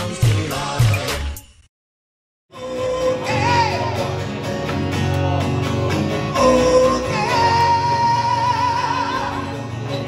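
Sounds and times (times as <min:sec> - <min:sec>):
person singing: 0:02.5 - 0:09.8
acoustic guitar: 0:02.5 - 0:10.0.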